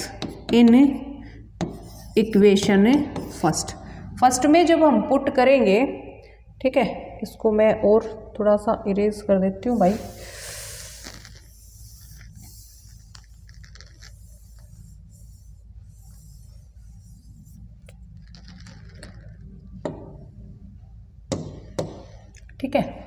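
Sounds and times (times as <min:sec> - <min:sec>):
steady low hum: 0:00.0 - 0:23.0
eraser rubbing on a board: 0:01.6 - 0:03.7, 0:09.7 - 0:19.3.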